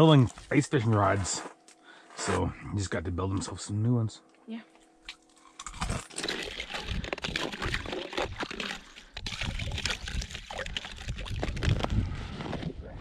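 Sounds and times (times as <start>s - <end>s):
ice crackling: 5.1s - 12.7s
stick sloshing slush and ice: 5.8s - 11.9s.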